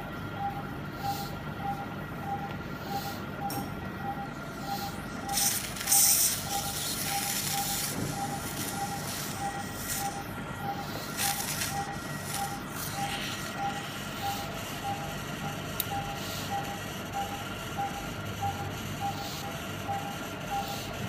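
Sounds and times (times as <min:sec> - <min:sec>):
patient monitor beeping: 0:00.0 - 0:21.0
high equipment tones: 0:04.2 - 0:20.9.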